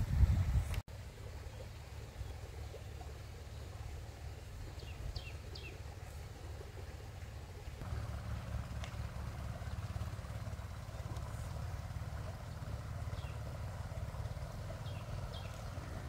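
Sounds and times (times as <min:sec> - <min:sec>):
small engine rumbling: 0:00.0 - 0:16.0.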